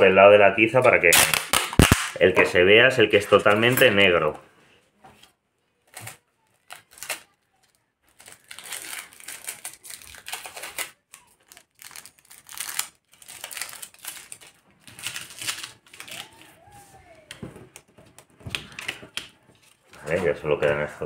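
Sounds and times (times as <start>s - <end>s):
sticky tape pulled and torn: 1.1s - 2.2s
crinkling of tape and cardstock: 5.1s - 21.0s.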